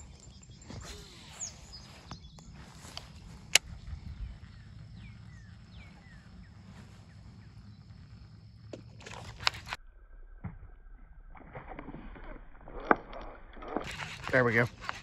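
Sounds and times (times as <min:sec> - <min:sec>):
falling bird chirps: 0:00.0 - 0:09.0.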